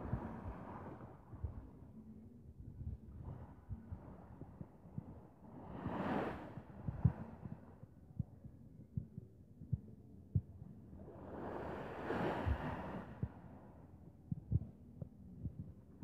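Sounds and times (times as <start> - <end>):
wind on microphone: 0.0 - 16.0.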